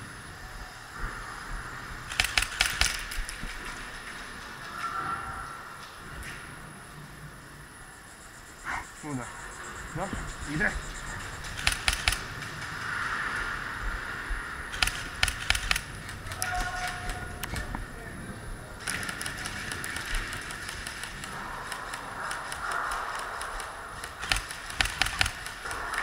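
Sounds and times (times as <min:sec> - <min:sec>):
airsoft gunshots cracking: 0:02.1 - 0:03.4, 0:11.4 - 0:12.5, 0:14.7 - 0:17.7, 0:18.8 - 0:26.0.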